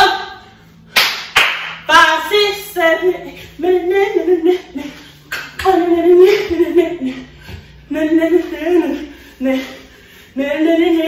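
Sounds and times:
woman singing rhythmic phrases: 0:00.0 - 0:11.0
sharp hand claps: 0:00.9 - 0:01.9, 0:05.3 - 0:05.7.

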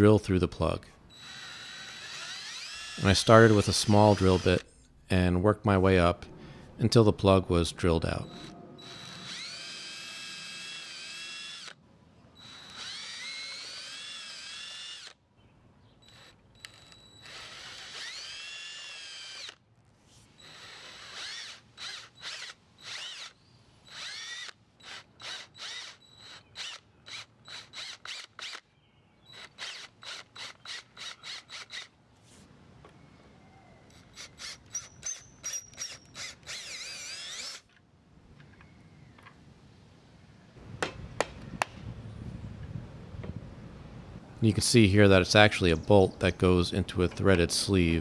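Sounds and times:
drill trigger bursts: 0:01.1 - 0:04.6, 0:08.3 - 0:11.8, 0:12.4 - 0:15.2, 0:16.0 - 0:19.6, 0:20.3 - 0:32.0, 0:33.9 - 0:37.7
power drill whining: 0:01.1 - 0:04.6, 0:08.3 - 0:11.8, 0:12.4 - 0:15.2, 0:16.0 - 0:19.6, 0:20.3 - 0:28.7, 0:29.3 - 0:31.9, 0:33.9 - 0:37.7.

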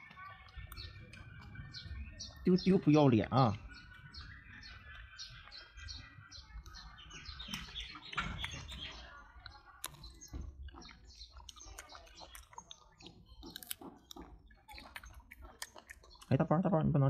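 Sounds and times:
monkey chirping and squeaking: 0:09.8 - 0:16.4
monkey biting fruit crunching: 0:10.9 - 0:16.3.

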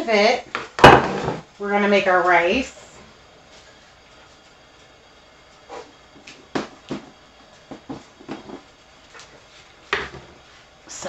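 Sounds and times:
kitchen items knocking: 0:00.8 - 0:01.4.

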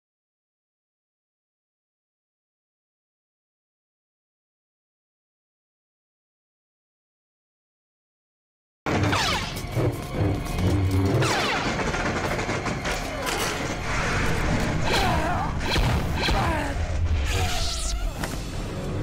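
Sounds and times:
dramatic background music: 0:08.9 - 0:19.0
lightsaber humming and whooshing: 0:13.0 - 0:19.0.

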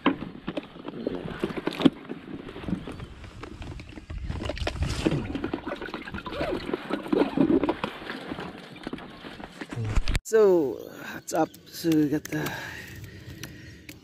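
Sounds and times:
wind rumble on microphone: 0:02.4 - 0:06.6.

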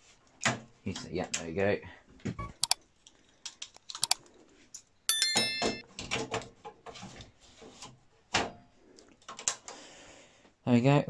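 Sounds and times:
high metallic ring: 0:05.1 - 0:05.8.

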